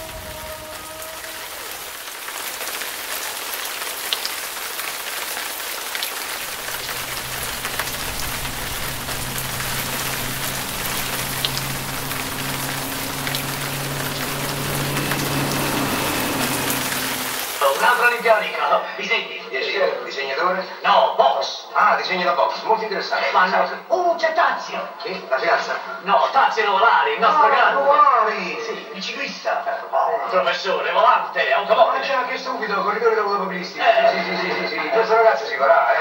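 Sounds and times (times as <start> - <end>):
rain falling: 0.0 - 18.8
low steady drone: 6.3 - 18.5.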